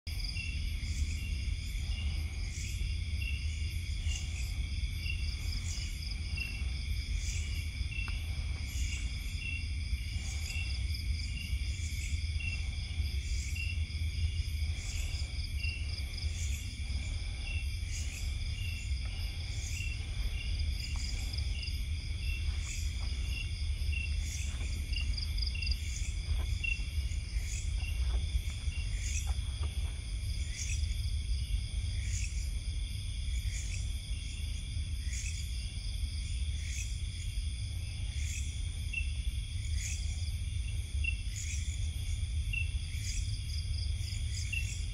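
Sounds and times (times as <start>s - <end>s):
crickets and insects trilling: 0.1s - 44.9s
pulsing insect trill: 0.1s - 44.9s
low rumble: 0.8s - 32.9s.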